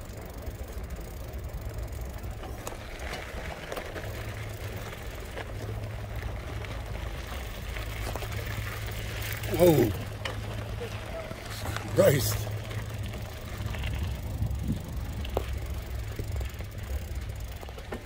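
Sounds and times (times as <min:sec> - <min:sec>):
tyres crunching on gravel: 0:00.0 - 0:18.0
vehicle low hum: 0:00.0 - 0:18.0.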